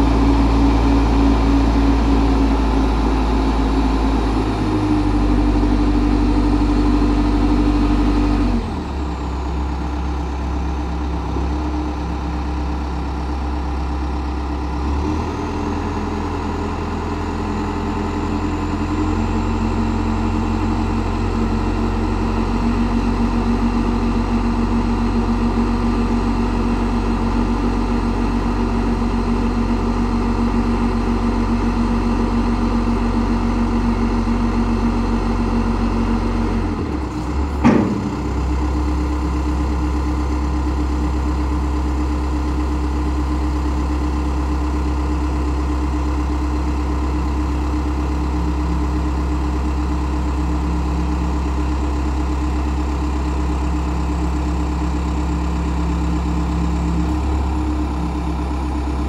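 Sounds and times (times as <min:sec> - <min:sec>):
diesel engine running: 0:00.0 - 0:59.0
brief mechanical clunk: 0:37.5 - 0:38.4.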